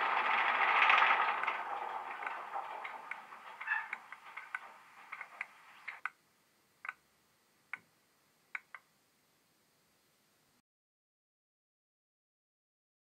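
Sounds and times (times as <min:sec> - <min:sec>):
model train clicking on track: 0:00.0 - 0:06.1
background noise: 0:00.0 - 0:10.6.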